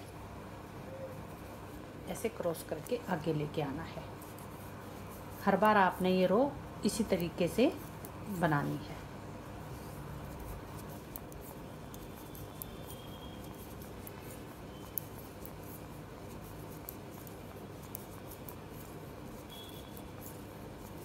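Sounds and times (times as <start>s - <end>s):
knitting needles clicking: 9.7s - 21.0s.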